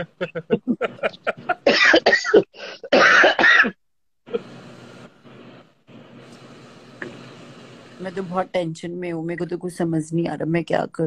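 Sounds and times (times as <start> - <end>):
person coughing: 0.0 - 3.8
faint steady hiss: 4.3 - 9.5.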